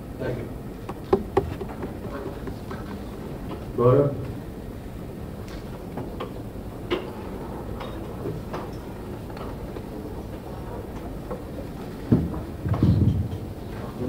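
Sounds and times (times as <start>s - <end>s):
light clicks and knocks: 0.8s - 3.7s.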